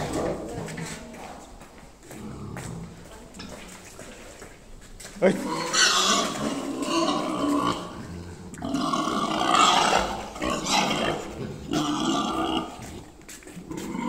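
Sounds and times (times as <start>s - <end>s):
pigs squealing and grunting: 5.3s - 14.0s.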